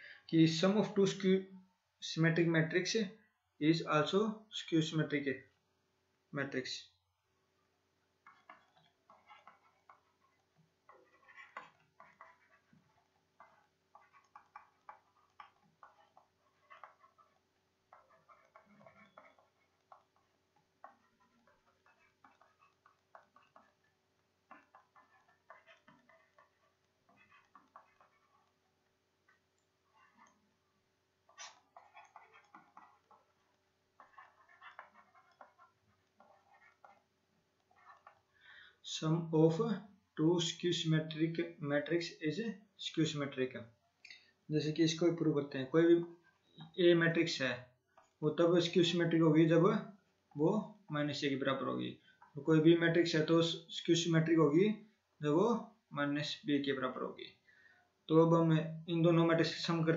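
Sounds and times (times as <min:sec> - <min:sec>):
stylus scratching on tablet: 0:07.2 - 0:39.8, 0:45.8 - 0:55.5.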